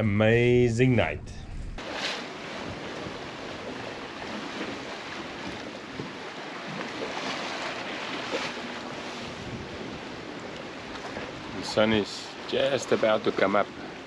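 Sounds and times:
sea rushing past hulls: 0.5s - 14.0s
wind buffeting microphone: 8.9s - 11.7s.

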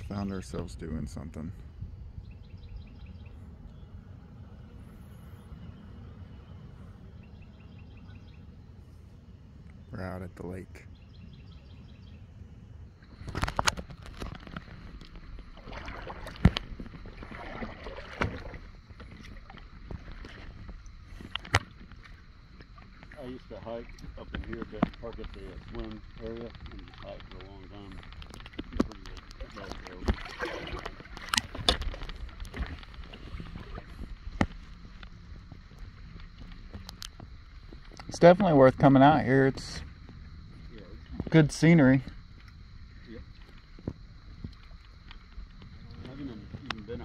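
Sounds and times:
wind noise on microphone: 12.8s - 38.3s, 39.5s - 47.0s
water lapping against plastic hull: 12.9s - 47.0s.

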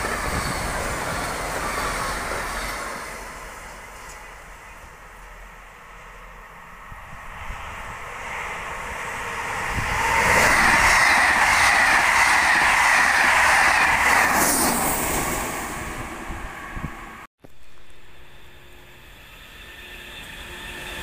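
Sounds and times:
passenger train passing: 0.0s - 21.0s.

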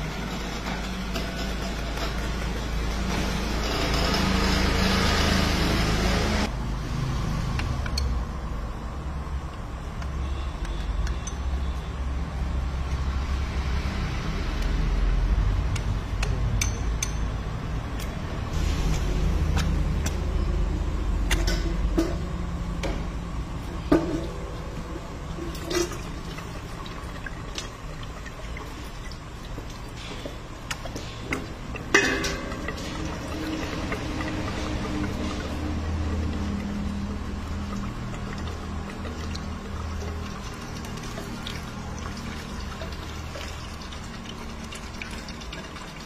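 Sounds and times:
stone oil mill rumble: 0.0s - 6.5s, 9.4s - 46.0s
oil trickling into steel pot: 24.6s - 46.0s.

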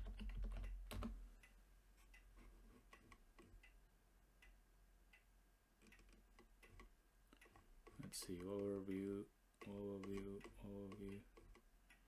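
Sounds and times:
keyboard and mouse clicks: 0.0s - 1.2s, 2.1s - 3.8s, 5.8s - 9.0s, 9.6s - 12.0s.

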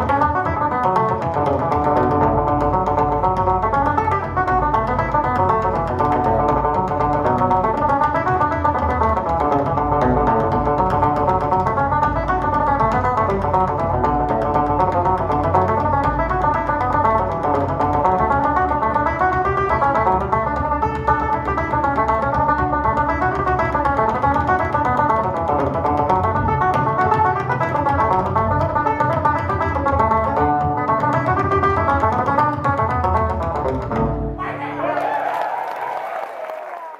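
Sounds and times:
banjo playing fast reel: 0.0s - 34.6s.

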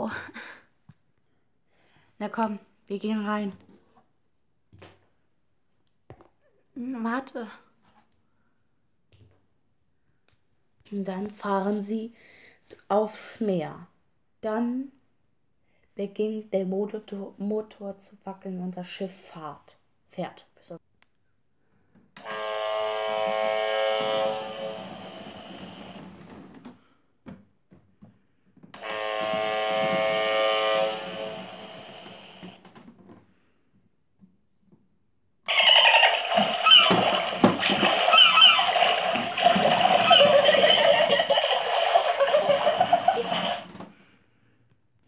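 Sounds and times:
small electric motor buzzing: 22.2s - 25.5s, 28.8s - 32.4s
birds crying: 35.5s - 41.3s
water splashing: 35.5s - 43.6s.

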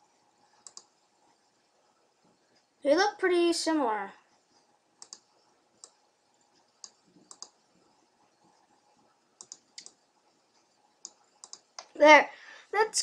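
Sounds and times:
computer mouse clicking: 0.4s - 1.4s, 4.4s - 12.0s.

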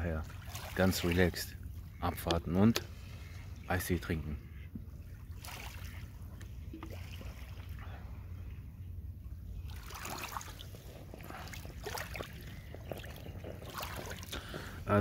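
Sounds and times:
water lapping over pebbles: 0.0s - 3.6s, 4.8s - 8.5s, 9.3s - 15.0s
small splashes and clicks: 5.4s - 7.7s, 9.7s - 14.7s.

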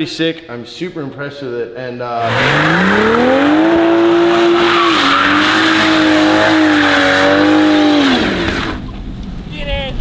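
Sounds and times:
car engine revving high: 2.2s - 8.8s
tyres spinning and squealing: 2.2s - 8.9s.

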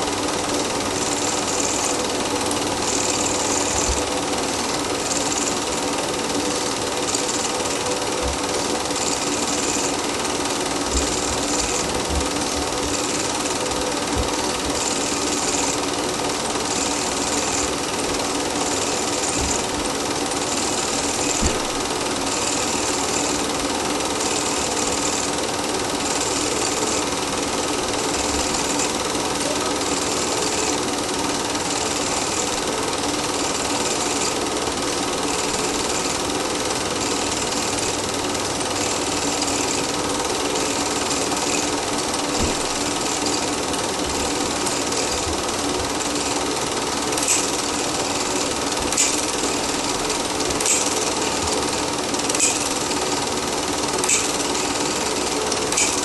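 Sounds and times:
film projector whirr and clatter: 0.0s - 56.0s.

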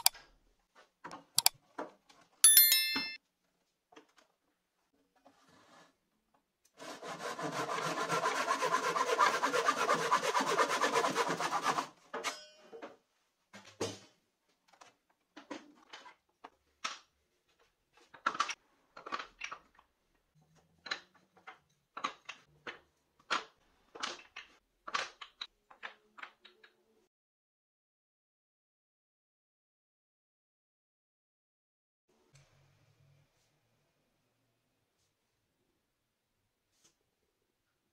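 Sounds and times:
hand saw cutting wood: 6.8s - 12.0s.

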